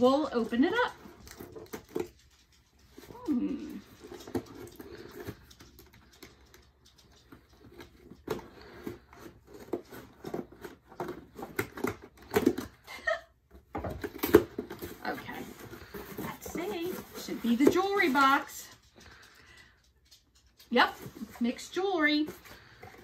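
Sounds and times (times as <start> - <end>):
person laughing: 12.9 - 13.4
cardboard box being handled: 13.6 - 18.5.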